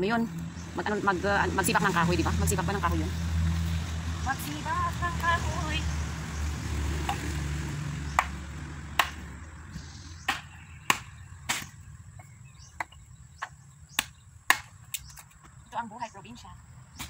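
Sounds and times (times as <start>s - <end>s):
machete chopping wood: 7.0s - 7.3s, 8.1s - 9.3s, 10.2s - 15.3s.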